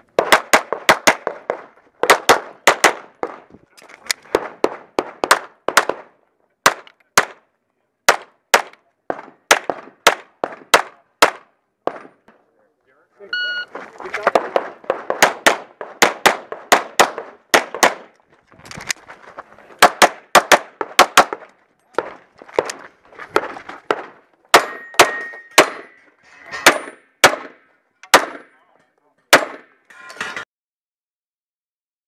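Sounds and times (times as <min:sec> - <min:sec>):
pistol shots: 0:00.2 - 0:03.4, 0:04.3 - 0:06.1, 0:06.7 - 0:07.4, 0:08.1 - 0:12.2, 0:14.2 - 0:18.1, 0:19.8 - 0:22.8, 0:23.4 - 0:26.0, 0:26.7 - 0:28.5, 0:29.3 - 0:29.8
steel targets clanging: 0:24.6 - 0:27.2, 0:29.8 - 0:30.4.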